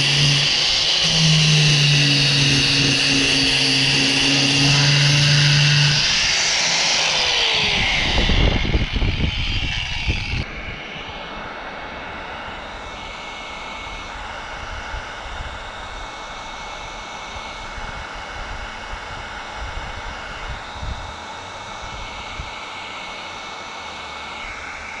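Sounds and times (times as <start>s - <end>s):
heat gun blowing: 0.0s - 10.4s
orbital sander on plastic: 0.0s - 10.5s.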